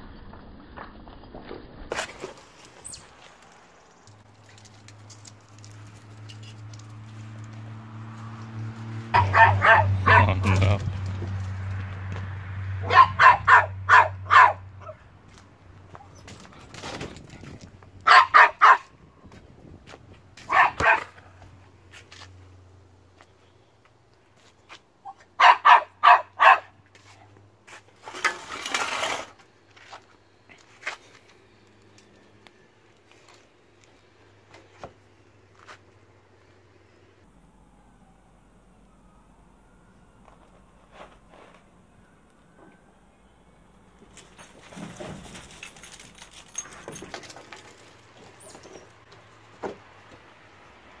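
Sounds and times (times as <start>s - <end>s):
dog paws pattering on pavement: 1.9s - 9.0s
small dog barking: 9.1s - 10.6s, 12.8s - 15.0s, 18.0s - 18.9s, 20.5s - 21.2s, 25.1s - 26.8s.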